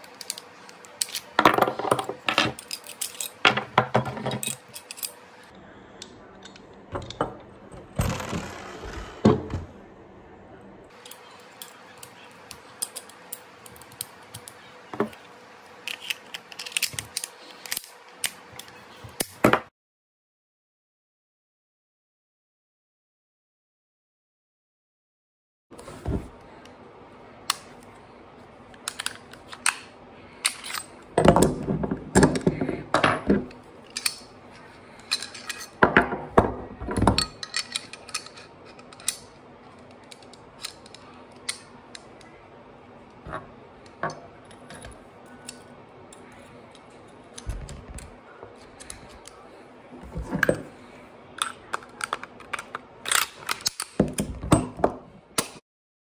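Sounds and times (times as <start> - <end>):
metal clicks of pistol parts: 15.9 - 18.4, 28.8 - 29.8, 37.2 - 42.0, 51.4 - 54.0.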